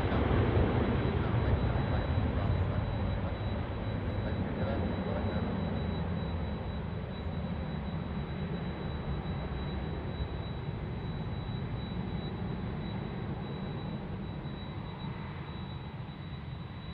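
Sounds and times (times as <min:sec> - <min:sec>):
jet airliner engines rumbling: 0:00.0 - 0:16.9.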